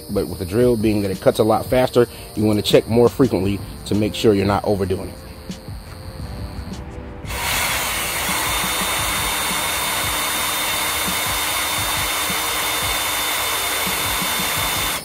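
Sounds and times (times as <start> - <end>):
power drill whining: 7.2 - 15.0.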